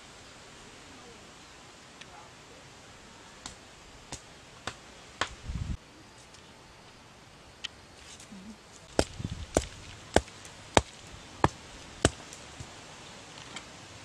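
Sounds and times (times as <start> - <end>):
stone knocking on wooden stake: 9.0 - 12.7.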